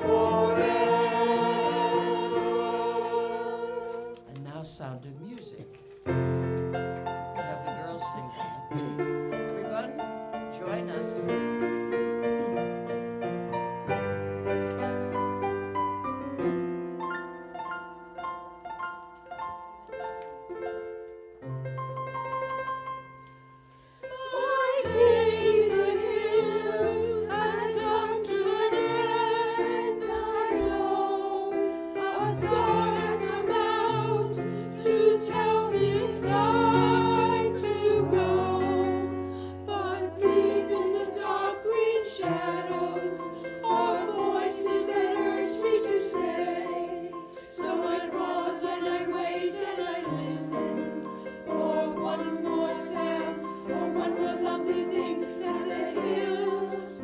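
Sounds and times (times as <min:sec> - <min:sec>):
small choir singing: 0:00.0 - 0:04.4, 0:23.8 - 0:57.0
piano accompaniment: 0:00.0 - 0:57.0.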